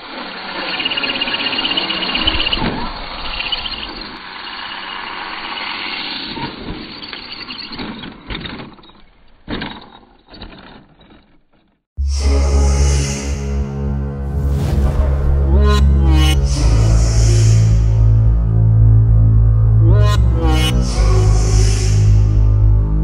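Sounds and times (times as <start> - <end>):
tyre and drivetrain noise: 0.0 - 11.9
toy car landing and tumbling: 6.3 - 11.8.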